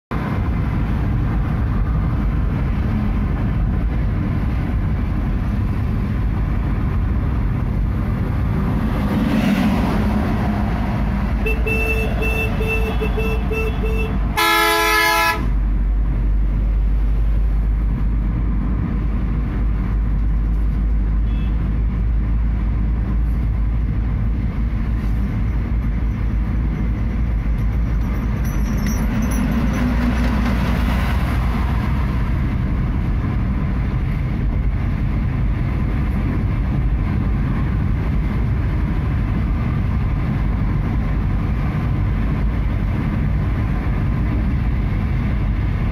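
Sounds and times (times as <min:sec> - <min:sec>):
car cabin road and engine noise: 0:00.1 - 0:45.9
pulsing horn beeps: 0:11.4 - 0:15.4
loud horn blast: 0:11.4 - 0:15.6.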